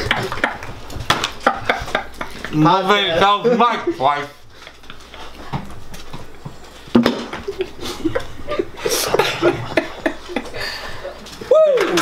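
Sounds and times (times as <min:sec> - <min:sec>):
people stifling laughter: 0:00.0 - 0:02.6, 0:07.4 - 0:11.3.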